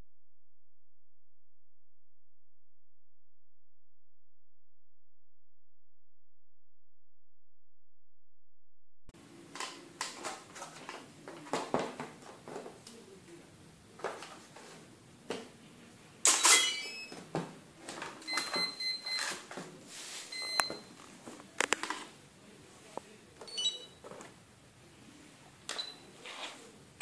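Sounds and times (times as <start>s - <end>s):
wires and connectors clicking: 21.6s - 22.1s
short steady beeps: 23.5s - 24.0s.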